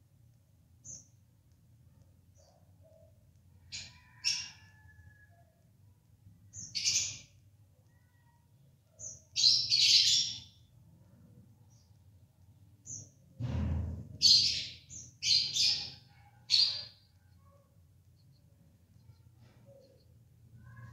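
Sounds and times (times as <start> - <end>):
budgerigar chirping: 15.4 - 17.0.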